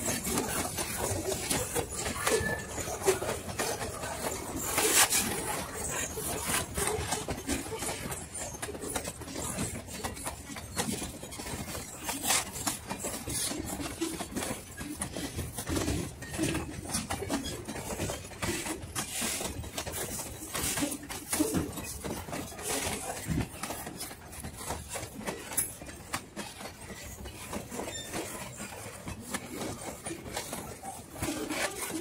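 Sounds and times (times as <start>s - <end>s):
train wheels clattering on rails: 0.0s - 32.0s.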